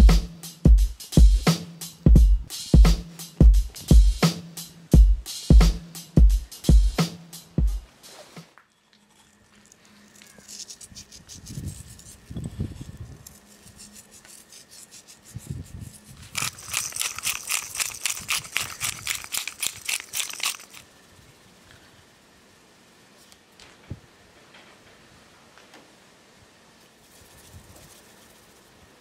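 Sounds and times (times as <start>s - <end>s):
spice grinder rasping: 8.8s - 20.9s.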